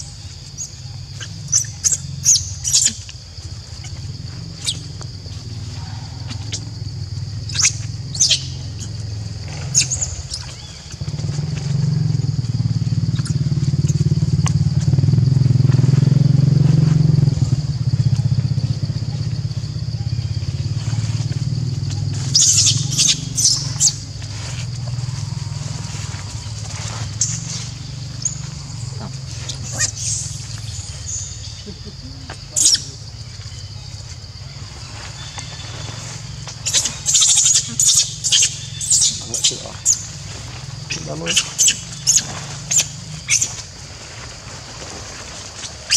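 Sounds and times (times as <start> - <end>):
motorbike engine running: 0.2 - 45.9
monkeys squeaking: 7.4 - 9.0, 22.2 - 24.1, 26.3 - 33.1, 36.6 - 40.2, 40.8 - 43.6.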